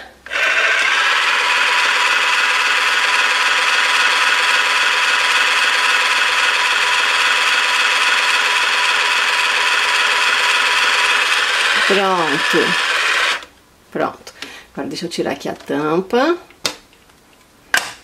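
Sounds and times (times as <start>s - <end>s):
toy blender motor whirring: 0.0s - 13.5s.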